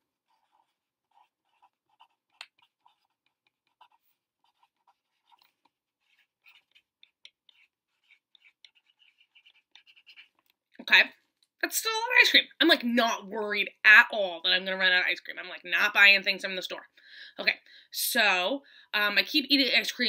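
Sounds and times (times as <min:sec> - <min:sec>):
pen scratching on paper: 0:00.1 - 0:10.6.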